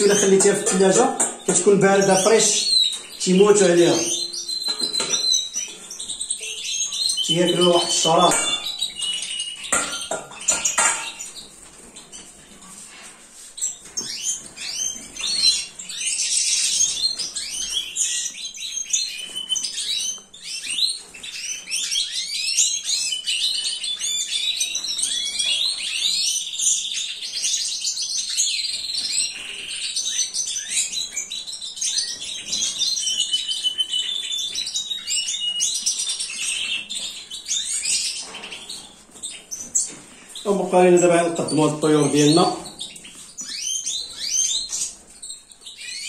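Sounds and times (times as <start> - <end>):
birds chirping and twittering: 0.0 - 46.0.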